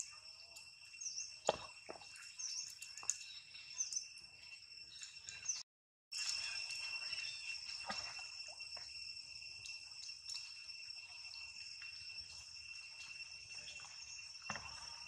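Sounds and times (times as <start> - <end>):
insects shrilling: 0.0 - 15.0.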